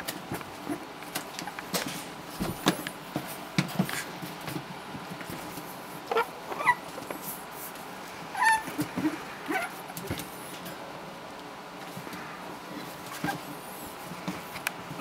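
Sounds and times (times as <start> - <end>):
puppy whimpers: 6.1 - 6.8.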